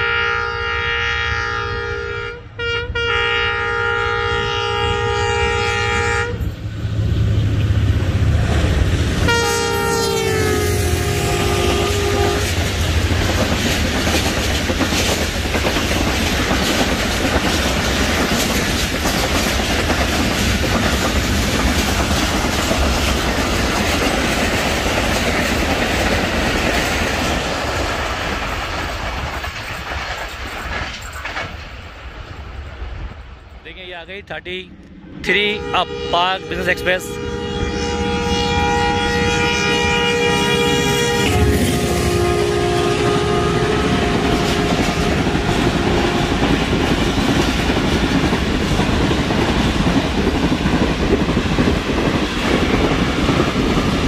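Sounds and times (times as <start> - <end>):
train air horn: 0.0 - 6.4, 9.2 - 12.6, 35.3 - 46.6
train wheels clattering: 11.9 - 32.4, 43.8 - 54.0.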